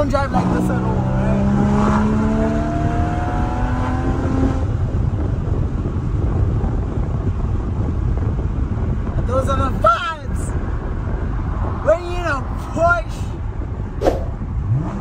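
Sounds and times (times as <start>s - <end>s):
car engine accelerating: 0.0s - 5.3s, 14.2s - 15.0s
road and wind noise: 0.0s - 15.0s.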